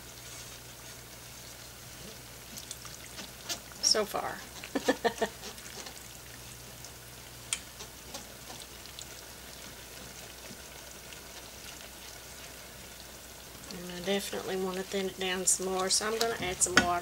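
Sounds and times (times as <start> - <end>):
simmering gravy crackle: 0.0 - 17.0
whisk stirring thick gravy: 0.2 - 7.0, 7.6 - 17.0.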